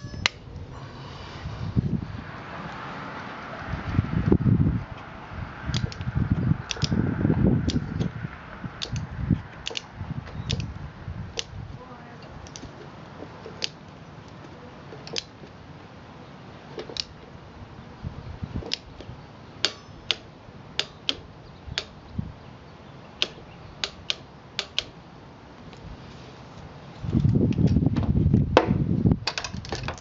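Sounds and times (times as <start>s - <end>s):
torque wrench clicks: 5.7s - 6.1s, 6.7s - 7.0s, 7.6s - 8.1s, 8.8s - 10.7s, 19.6s - 22.0s, 23.2s - 24.9s.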